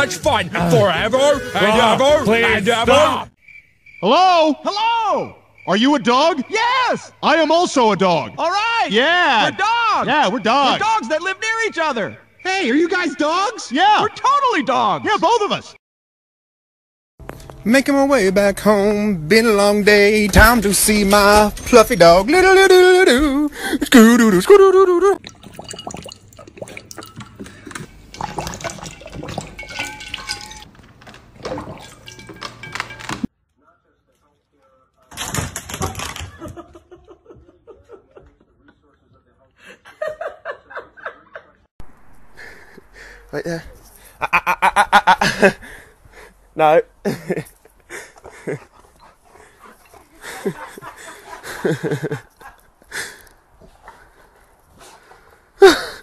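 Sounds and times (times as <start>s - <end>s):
dog splashing and slurping water: 25.2s - 30.7s, 31.3s - 32.4s.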